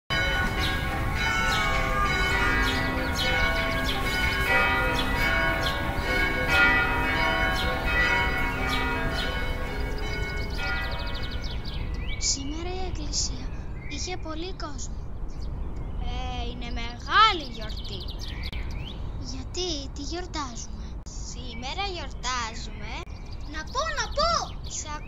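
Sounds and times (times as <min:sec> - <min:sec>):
church bells ringing: 0:00.1 - 0:12.0.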